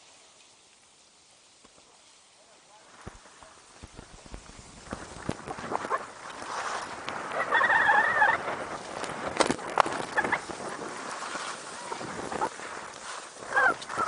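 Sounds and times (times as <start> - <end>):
skis scraping over snow: 0.0 - 14.0
ski edges clacking on bumps: 2.9 - 7.5, 8.4 - 14.0.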